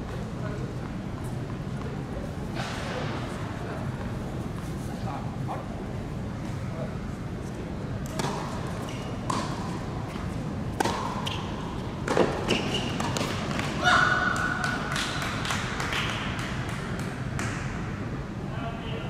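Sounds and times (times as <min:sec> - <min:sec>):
tennis ball bouncing: 0:08.0 - 0:13.8
racket striking tennis ball: 0:09.2 - 0:13.8.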